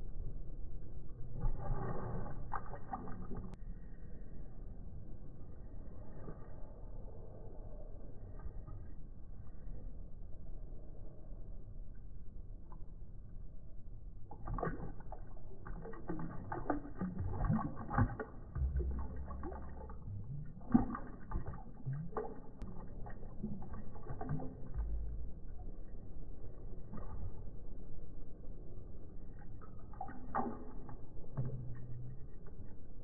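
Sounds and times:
dog lapping water from a bowl: 1.4 - 3.6, 14.2 - 27.9, 29.1 - 33.0.

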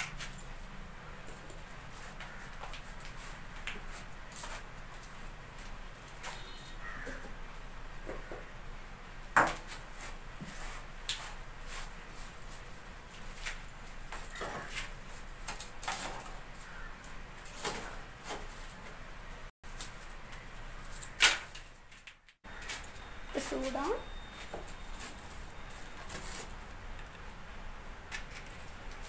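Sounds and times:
firewood sticks knocking and rustling: 13.2 - 18.9.

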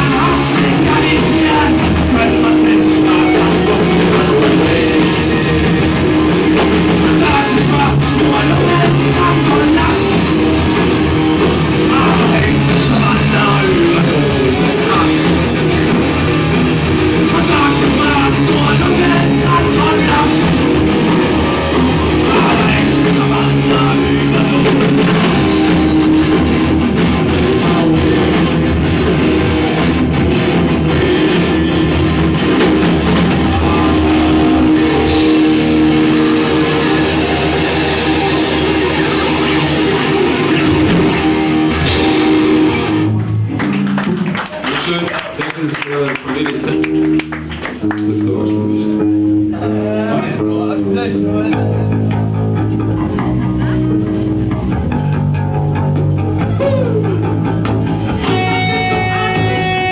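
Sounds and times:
person singing: 0.0 - 5.9, 6.6 - 10.3, 11.8 - 15.6, 17.2 - 25.8, 56.5 - 57.4, 58.2 - 59.9
rock band playing loud: 0.0 - 59.9.

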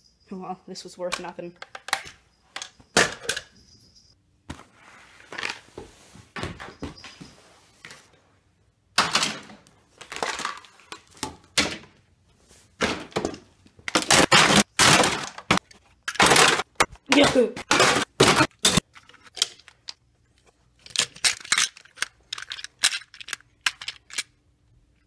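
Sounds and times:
toy trains clattering: 20.8 - 24.4.

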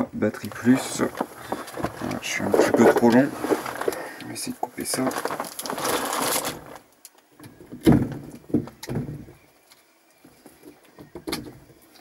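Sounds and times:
cable being handled: 0.4 - 6.9
rustling knocks and rubs: 0.5 - 4.1.

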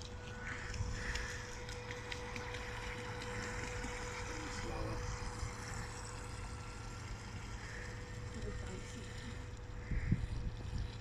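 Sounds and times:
electric motor whine: 0.0 - 11.0
wind noise on microphone: 9.8 - 11.0.

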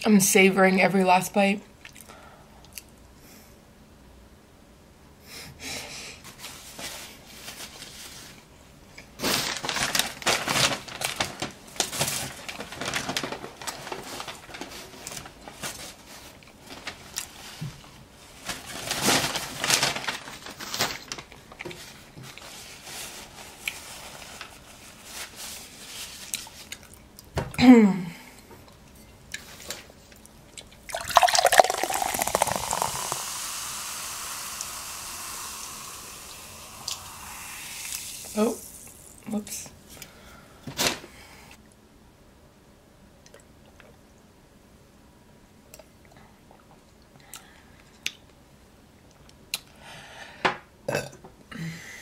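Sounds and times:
paper rustling and crinkling: 9.2 - 26.7
person chewing: 30.1 - 33.4.

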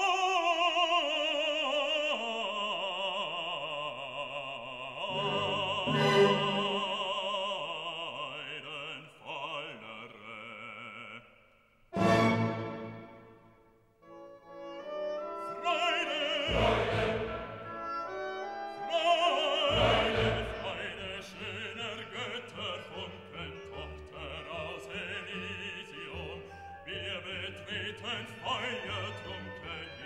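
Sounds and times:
operatic voice singing: 0.0 - 11.4, 15.3 - 30.0
orchestra: 4.9 - 8.6, 11.9 - 30.0.

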